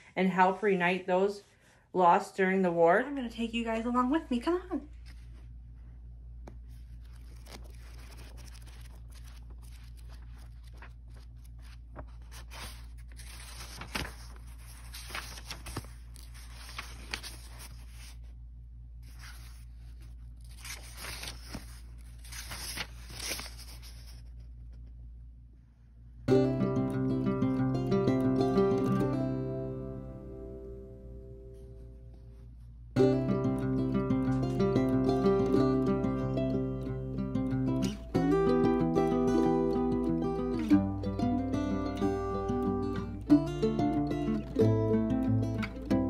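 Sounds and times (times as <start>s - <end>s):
book pages rustling: 4.9s - 18.4s, 19.0s - 25.1s.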